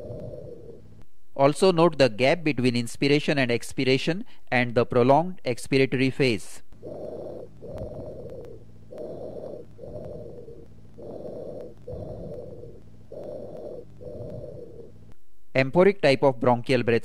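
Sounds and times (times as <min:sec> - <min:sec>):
breath sounds through stethoscope: 0:00.0 - 0:01.0, 0:06.6 - 0:15.2.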